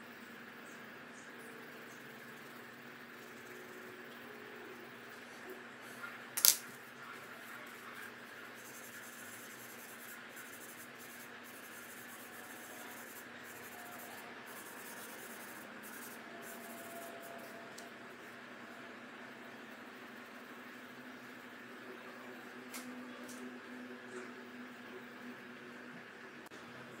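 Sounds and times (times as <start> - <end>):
pencil set down on table: 6.4 - 6.7
pencil scratching on paper: 7.1 - 17.5.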